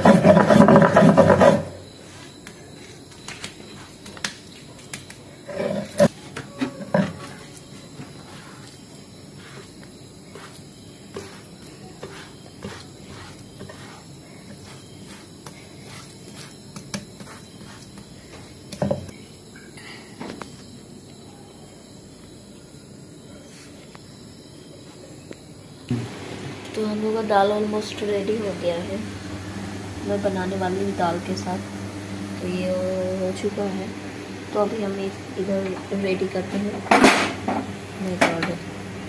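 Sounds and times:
stone roller grinding paste: 0.0s - 3.0s, 9.4s - 18.1s
hands scraping paste on stone: 9.4s - 18.1s.

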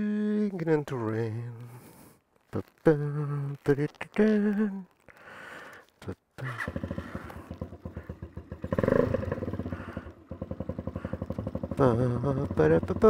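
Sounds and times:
motorcycle engine idling: 6.4s - 13.0s.

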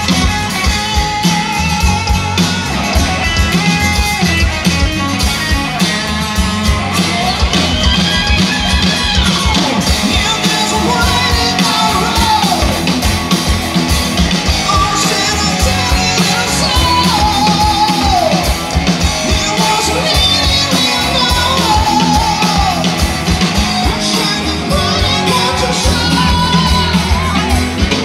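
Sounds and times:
steady drum beat: 0.0s - 28.0s
man singing: 9.8s - 13.0s, 14.5s - 28.0s.

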